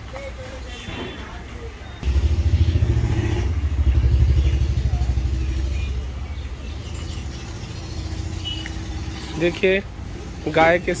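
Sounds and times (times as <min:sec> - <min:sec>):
engine low throbbing rumble: 0:02.0 - 0:09.3.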